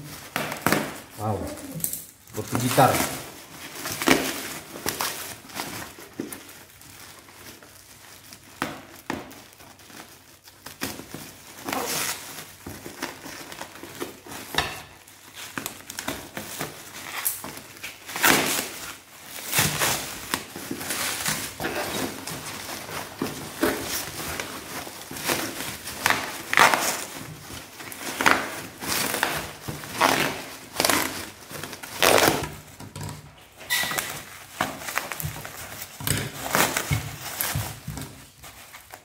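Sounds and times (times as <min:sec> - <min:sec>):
plastic tearing: 0:00.0 - 0:39.0
plastic wrap crinkling and rustling: 0:00.0 - 0:39.0.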